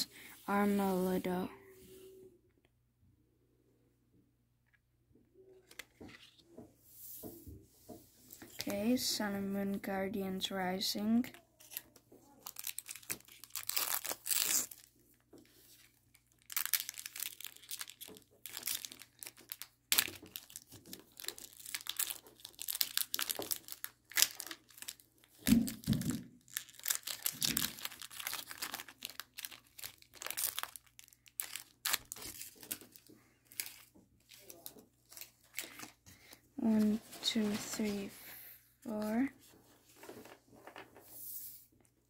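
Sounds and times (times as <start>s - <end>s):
foil wrapper tearing and crinkling: 11.6s - 15.0s, 15.7s - 35.9s.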